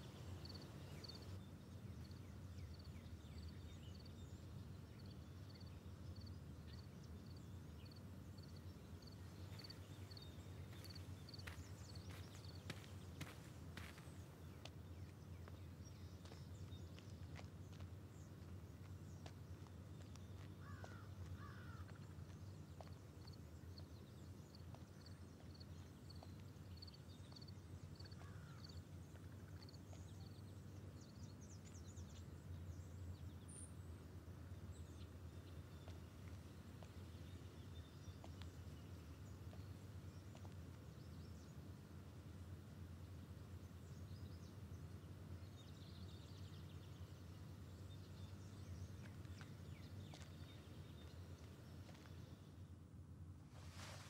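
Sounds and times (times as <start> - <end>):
distant birds calling: 7.0 - 33.1.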